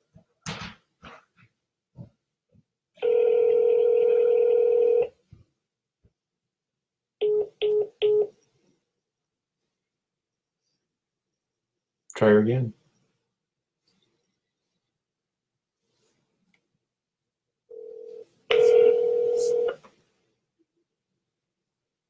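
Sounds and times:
telephone ringback tone: 3.0 - 5.2, 7.2 - 8.3, 17.7 - 19.8.

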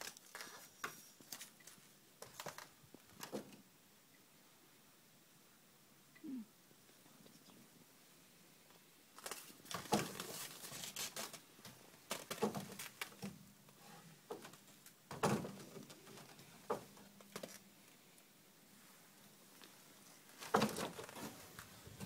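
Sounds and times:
rustling and crunching in hay and snow: 9.2 - 11.6.

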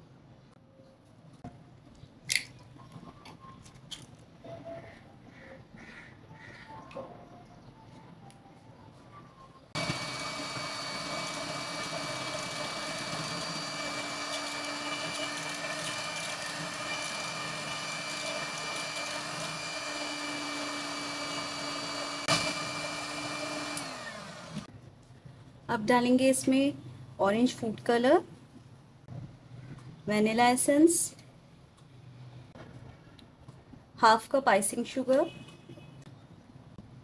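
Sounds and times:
electric hand mixer whining: 9.8 - 24.7.

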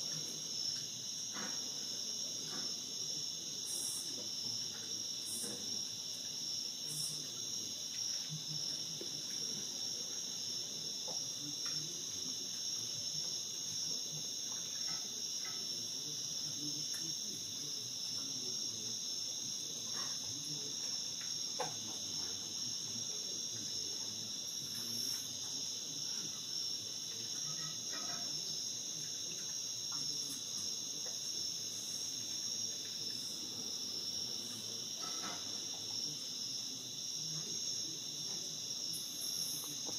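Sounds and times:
insects trilling: 0.0 - 39.9.

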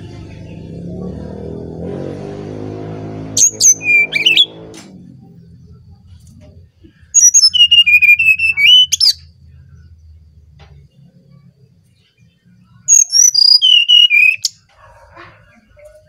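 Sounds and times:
bird singing fluty song: 2.9 - 14.9
faint low hum: 4.5 - 13.0.

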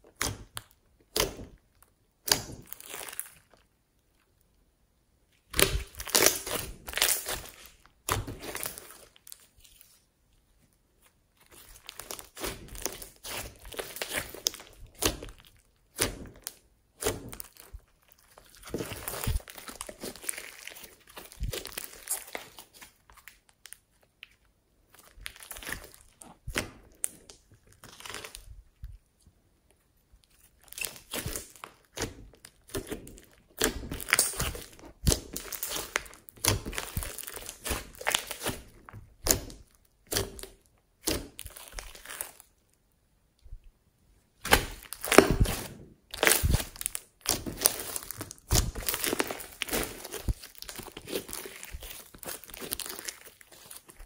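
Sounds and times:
slime crackling and popping: 0.0 - 3.7, 5.4 - 9.9, 11.4 - 24.3, 24.9 - 28.5, 30.3 - 42.6, 44.4 - 54.0.

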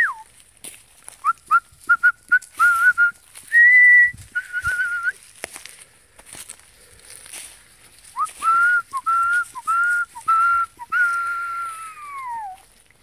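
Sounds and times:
person whistling to call dogs: 0.0 - 0.3, 1.2 - 5.2, 8.2 - 12.6.

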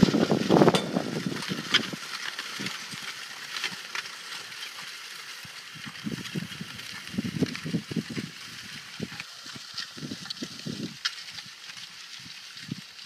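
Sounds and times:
metallic clinks and rattles: 0.7 - 1.2.

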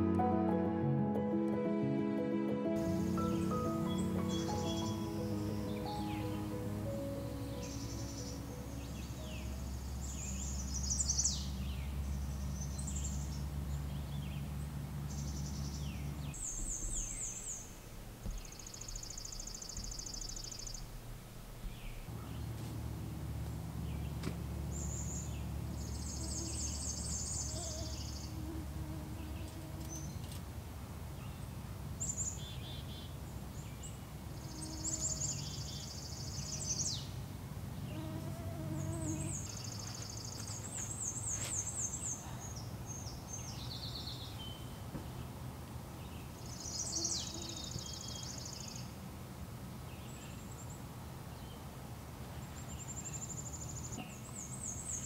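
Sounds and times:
insects buzzing: 2.8 - 11.3, 24.2 - 30.4, 34.3 - 36.2, 37.7 - 41.9
songbird trilling: 2.8 - 11.6, 24.7 - 30.3.

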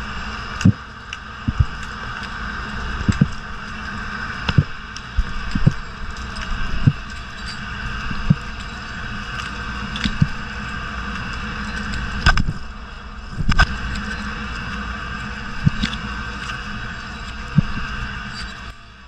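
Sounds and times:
underwater hiss and rumble: 0.0 - 19.0
sharp clicks and knocks: 11.2 - 12.6.

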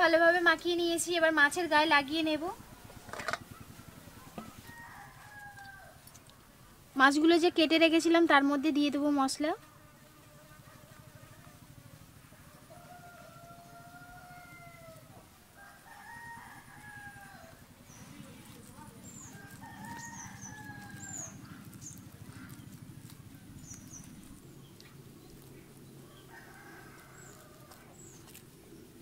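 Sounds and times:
roosters crowing: 2.6 - 6.1, 11.1 - 29.0
small birds chirping: 16.0 - 29.0.

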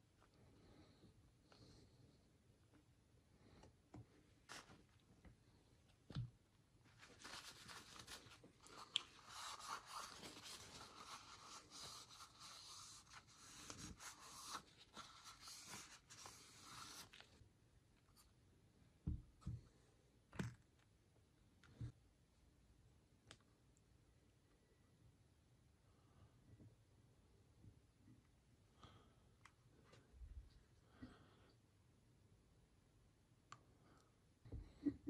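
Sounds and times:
paper towel rubbing and rustling: 6.9 - 17.2.

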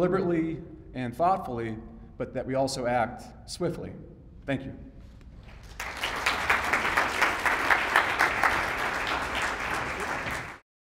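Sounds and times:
audience applauding: 5.4 - 10.6.

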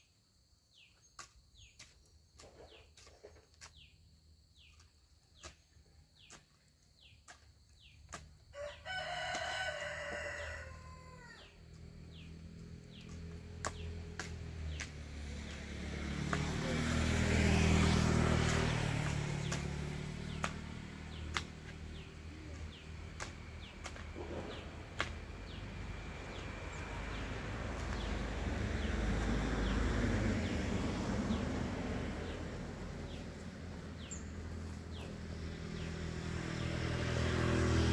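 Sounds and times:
road traffic rumble: 2.4 - 37.9
hand hoe striking soil: 4.8 - 8.4, 18.5 - 24.4.

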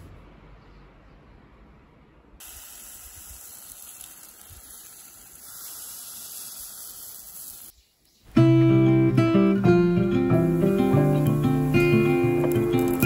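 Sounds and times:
batter hissing in hot mold: 2.4 - 7.7, 10.3 - 13.0.

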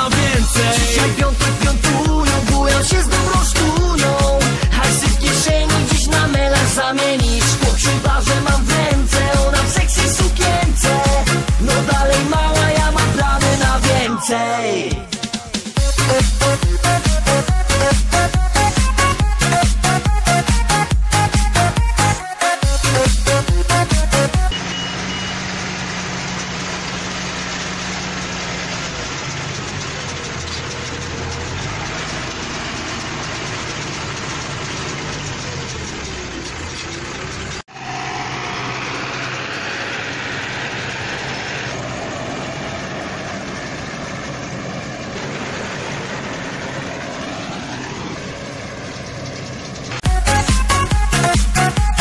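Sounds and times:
tractor diesel engine running: 0.0 - 52.0
faint rising whines: 37.7 - 50.0.

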